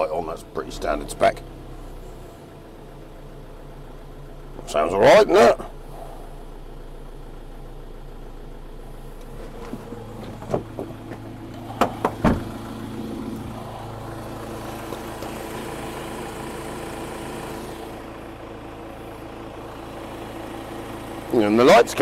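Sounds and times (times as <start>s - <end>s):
diesel engine idling: 0.0s - 22.0s
sharp engine knocks: 9.2s - 13.5s.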